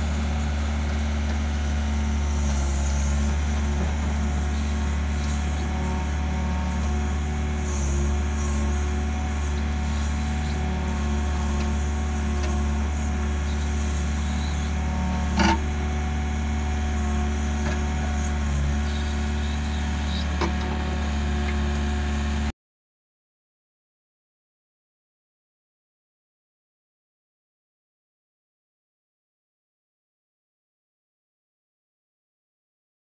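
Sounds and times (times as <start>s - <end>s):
diesel engine running: 0.0s - 22.5s.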